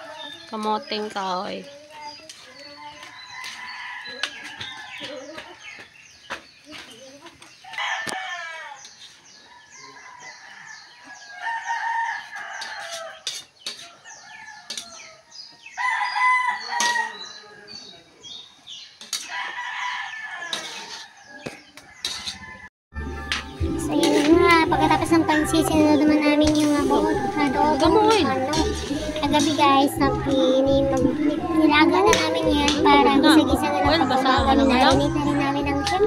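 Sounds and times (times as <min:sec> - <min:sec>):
roosters crowing: 0:02.4 - 0:05.9, 0:07.6 - 0:18.3, 0:19.1 - 0:22.7, 0:24.0 - 0:36.0
metal spatula scraping a wok: 0:08.8 - 0:09.3, 0:12.6 - 0:14.0, 0:14.7 - 0:15.0, 0:19.0 - 0:19.4, 0:20.5 - 0:21.2, 0:22.0 - 0:22.6, 0:23.8 - 0:36.0.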